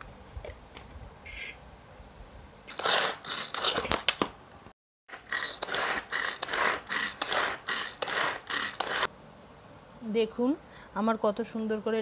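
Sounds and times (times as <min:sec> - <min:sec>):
vegetable chopper rasping whirr: 0:05.1 - 0:09.1.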